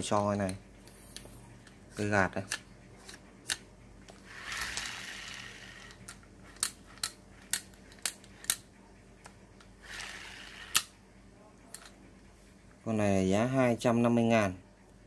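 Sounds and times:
fishing reel whirring: 4.3s - 6.1s, 9.8s - 10.9s.

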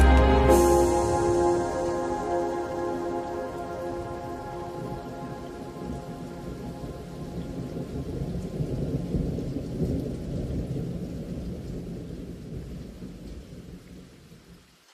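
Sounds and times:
low rumbling rush: 0.0s - 9.0s.

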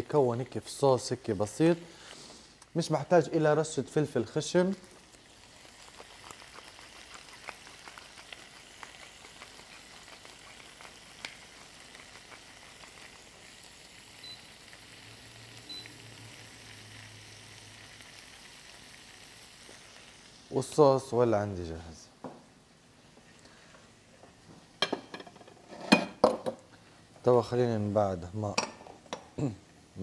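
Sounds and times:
seafood sizzling in a frying pan: 3.7s - 20.8s.

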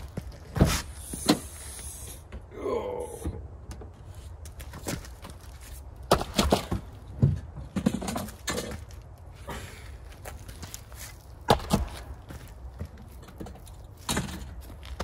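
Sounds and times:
camp gear knocks and thuds: 4.6s - 9.0s.

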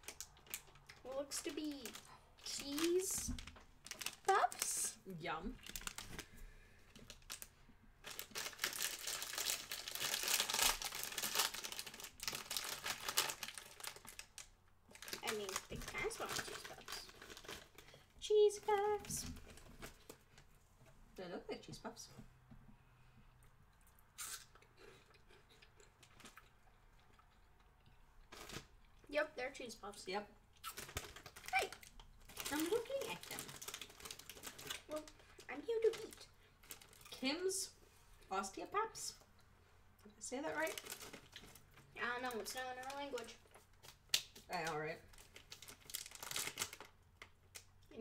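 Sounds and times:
plastic snack bag crinkling: 0.0s - 20.5s, 25.7s - 29.1s, 30.6s - 37.2s, 40.5s - 48.0s
chewing crunchy cheese puffs: 6.9s - 18.1s, 23.4s - 29.1s, 30.5s - 37.2s, 40.6s - 47.9s.

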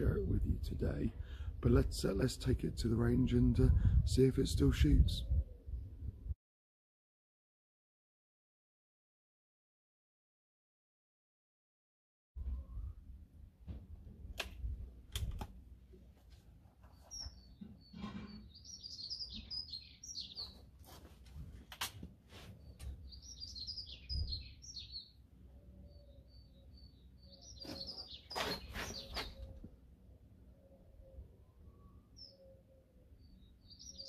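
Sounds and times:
air rifle clicks and knocks: 14.3s - 15.6s
songbird chirping: 16.8s - 21.0s, 22.4s - 34.0s.

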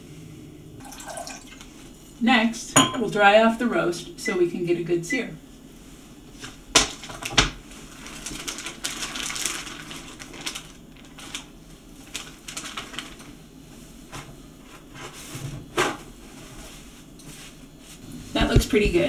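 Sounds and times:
plastic bag crinkling: 6.9s - 13.4s.

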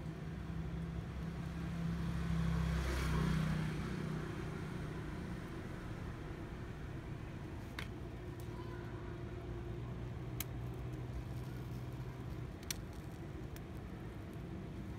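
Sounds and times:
vehicle passing with tyre hiss: 0.0s - 7.6s.

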